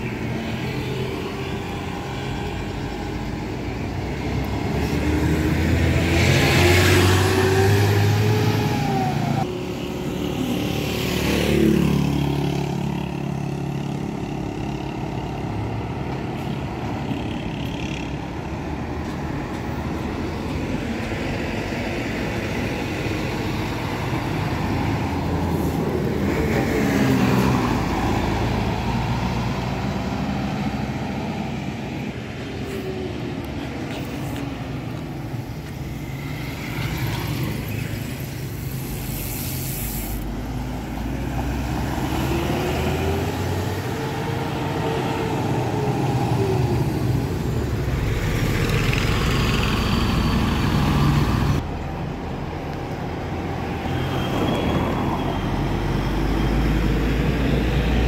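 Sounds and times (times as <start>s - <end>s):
heavy traffic passing: 0.0s - 58.0s
brief hiss: 38.8s - 40.4s.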